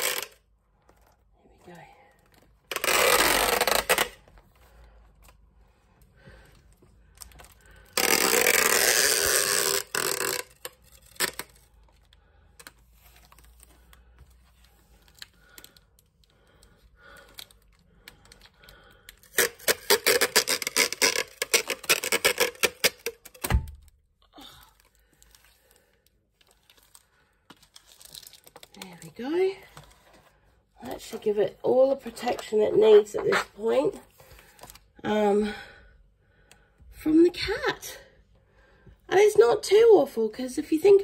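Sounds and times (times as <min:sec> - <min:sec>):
packing tape pulled off roll: 0:00.0 - 0:00.4, 0:02.3 - 0:05.4, 0:07.1 - 0:24.0.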